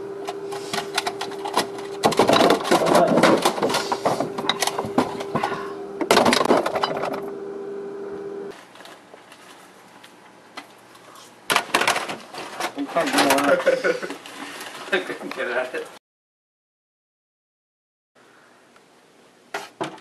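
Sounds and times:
steady hum: 0:00.0 - 0:08.5
items clattering on refrigerator shelves: 0:00.3 - 0:07.3, 0:11.5 - 0:15.5.

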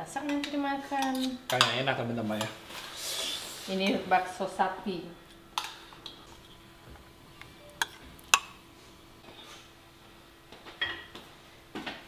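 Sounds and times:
faint steady hum: 0:00.0 - 0:12.0
utensils clinking against dishes: 0:00.2 - 0:02.6.

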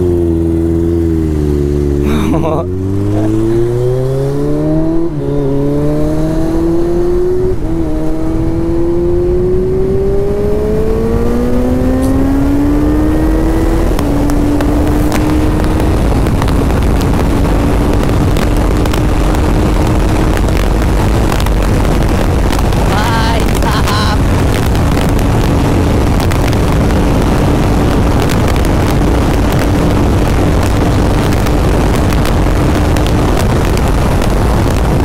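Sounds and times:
motorcycle engine accelerating: 0:00.0 - 0:35.0
wind rushing over microphone: 0:00.0 - 0:35.0.

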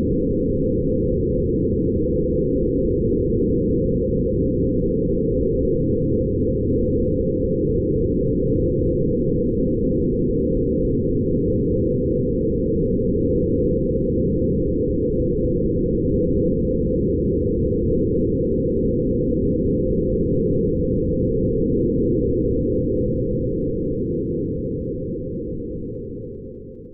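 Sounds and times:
grainy low drone: 0:10.0 - 0:26.9.

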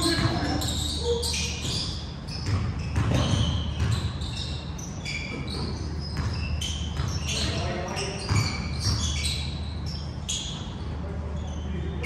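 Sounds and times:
basketball bouncing: 0:00.0 - 0:00.8, 0:01.5 - 0:04.5, 0:05.3 - 0:09.2
sneakers squeaking on gym floor: 0:00.0 - 0:12.0.

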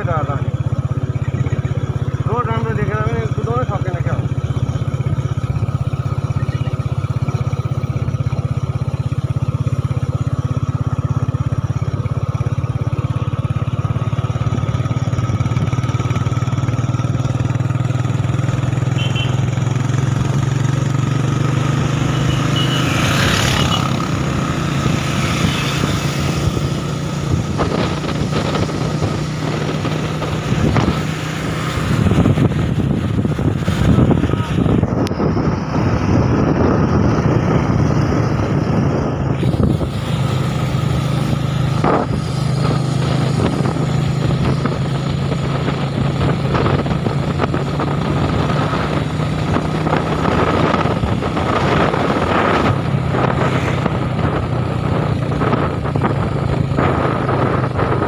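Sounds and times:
motorcycle engine running: 0:00.0 - 0:58.0
wind rushing over microphone: 0:23.0 - 0:58.0.

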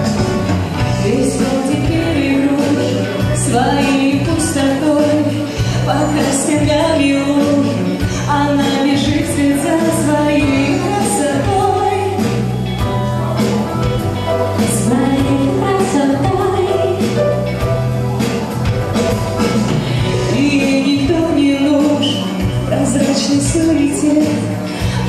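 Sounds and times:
keyboard: 0:00.0 - 0:25.0
live pop song: 0:00.0 - 0:25.0
female vocals into microphones: 0:00.8 - 0:12.5, 0:14.6 - 0:17.2, 0:20.0 - 0:25.0.

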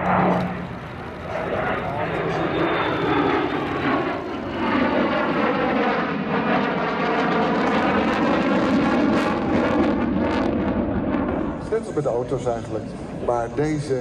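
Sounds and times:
jet engine roaring past: 0:00.0 - 0:14.0.

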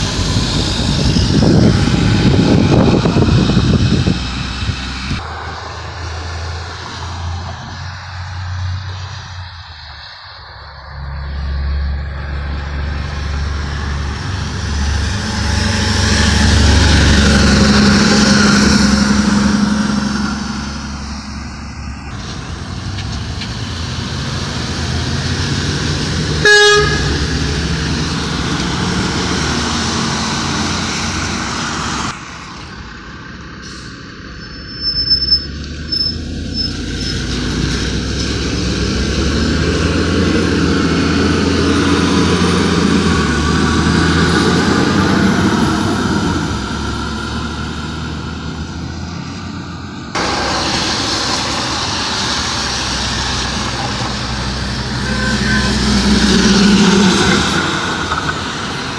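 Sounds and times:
diesel truck pulling away: 0:00.0 - 0:09.5, 0:11.0 - 0:58.9
tyres hissing on wet road: 0:00.0 - 0:34.6, 0:35.6 - 0:58.9
truck engines running: 0:00.0 - 0:58.9
truck horn toot: 0:26.3 - 0:27.6, 0:54.8 - 0:57.1.

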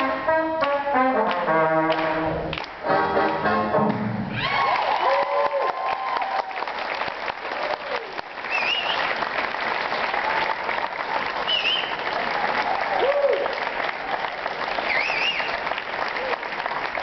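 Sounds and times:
audience clapping: 0:00.6 - 0:17.0
whoops and shouts: 0:04.3 - 0:06.6, 0:07.6 - 0:08.2, 0:12.7 - 0:13.6.

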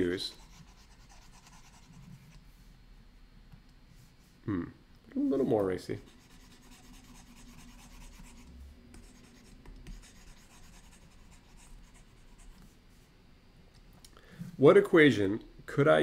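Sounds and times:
stylus scratching on tablet: 0:00.0 - 0:02.4, 0:05.9 - 0:12.7.

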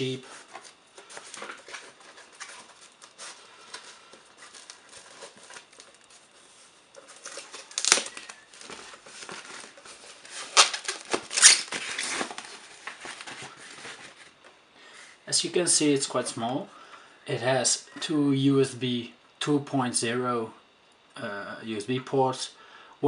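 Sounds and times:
foam wrapping rustling and crinkling: 0:00.0 - 0:14.4
sharp crackles: 0:07.1 - 0:08.8.

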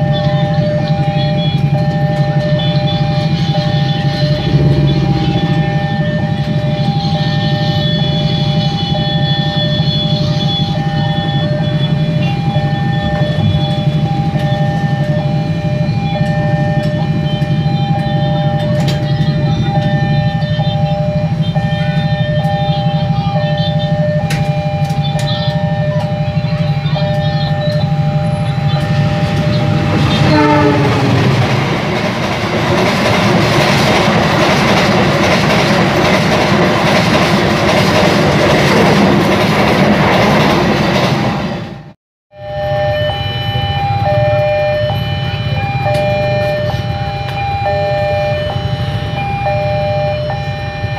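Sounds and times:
train horn: 0:00.0 - 0:12.4, 0:28.4 - 0:32.3
train wheels on rails: 0:00.0 - 0:41.9, 0:42.7 - 0:50.9
level crossing alarm: 0:00.0 - 0:50.9
low hum: 0:03.2 - 0:07.0.

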